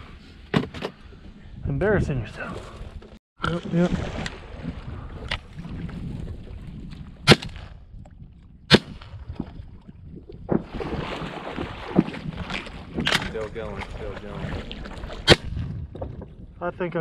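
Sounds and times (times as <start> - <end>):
loud shotgun shots: 7.2 - 7.7, 8.7 - 9.1.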